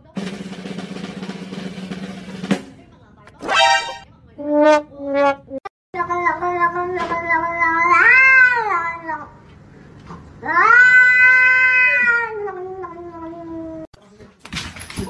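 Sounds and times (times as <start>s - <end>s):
cat yowling: 7.6s - 9.3s, 10.4s - 13.9s.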